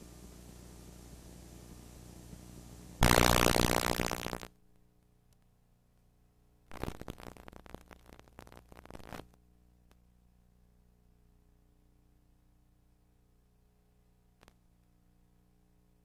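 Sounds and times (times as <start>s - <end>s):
burst of tape hiss: 0.0s - 4.6s, 6.7s - 9.4s
crackling static: 0.0s - 5.5s, 6.7s - 10.0s, 14.3s - 14.9s
faint hum: 0.0s - 16.0s.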